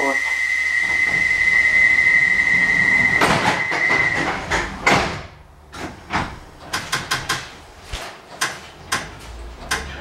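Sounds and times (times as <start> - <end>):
steady high tone: 0.0 - 4.3
train doors shutting thud: 2.9 - 7.5
sharp clicks and knocks: 3.2 - 10.0.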